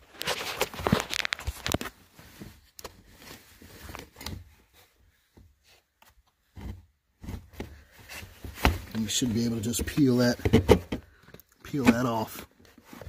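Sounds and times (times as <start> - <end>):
handling clicks and knocks: 6.0 - 13.0.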